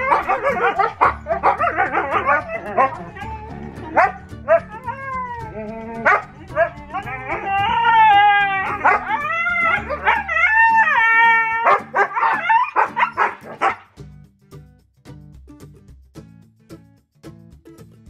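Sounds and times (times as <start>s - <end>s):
puppies whining: 0.0s - 13.8s
background music: 0.0s - 18.0s.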